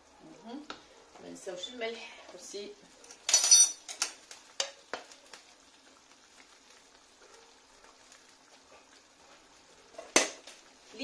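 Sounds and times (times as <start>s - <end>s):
sauce simmering in a pan: 0.0s - 11.0s
metal spoon clattering on countertop: 3.1s - 4.2s.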